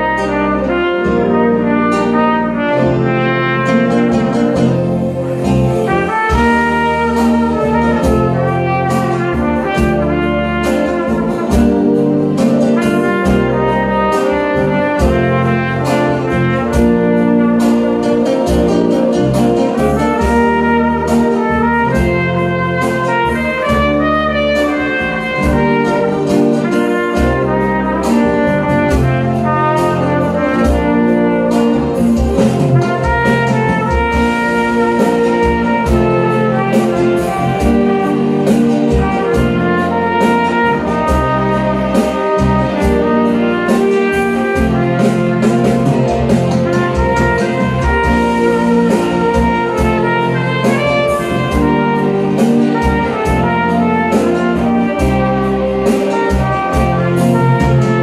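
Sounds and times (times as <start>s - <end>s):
backing track with bass and percussion: 0.0s - 58.0s
trumpet melody: 0.0s - 58.0s.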